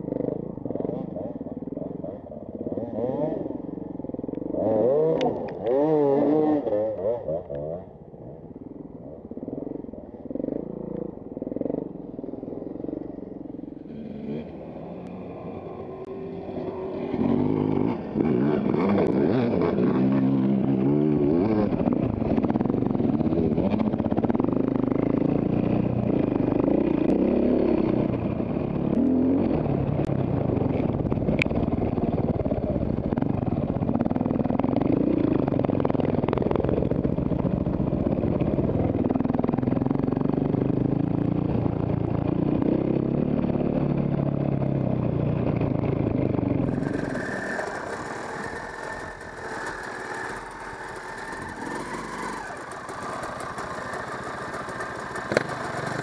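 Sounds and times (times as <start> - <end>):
dirt bike engine revving: 0.1 - 7.9, 10.3 - 30.1, 45.5 - 56.0.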